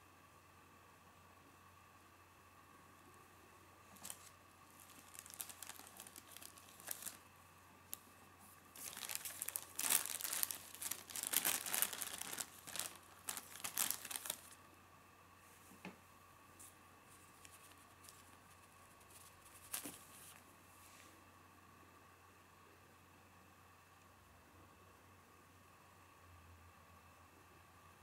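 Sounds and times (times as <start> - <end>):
plastic bag crinkling: 3.9 - 7.2, 8.7 - 14.6, 17.3 - 20.4.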